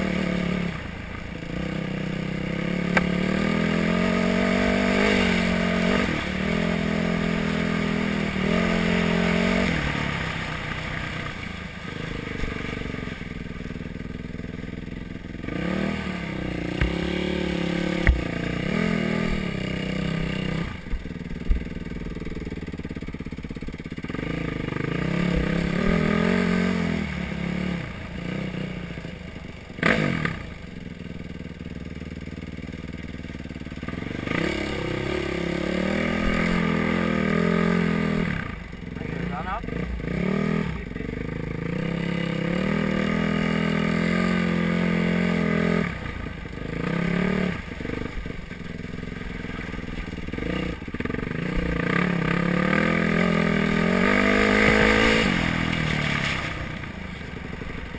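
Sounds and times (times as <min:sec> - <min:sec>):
dirt bike engine revving: 0:00.0 - 0:57.9
sharp knocks over rocks: 0:16.7 - 0:17.2, 0:17.9 - 0:18.6.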